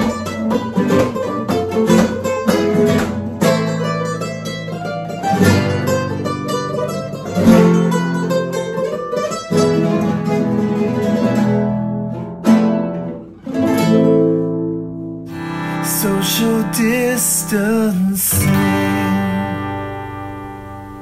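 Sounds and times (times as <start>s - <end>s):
acoustic guitar chords: 0.0s - 21.0s.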